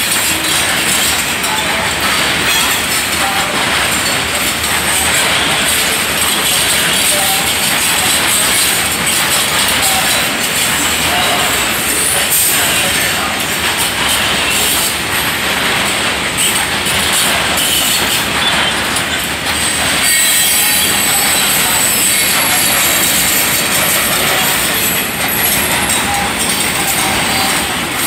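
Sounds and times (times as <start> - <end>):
train wheels rolling over rails: 0.0 - 28.0
high-pitched wheel squeal: 19.6 - 24.9.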